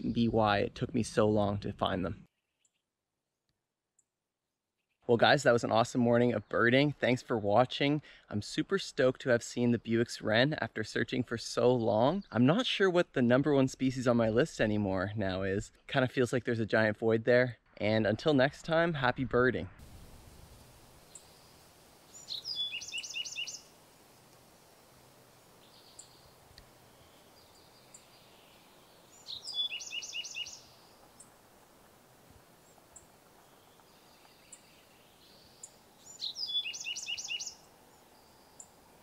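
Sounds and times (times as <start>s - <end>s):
wren singing trill: 21.0s - 23.8s, 25.6s - 31.3s, 33.0s - 38.8s.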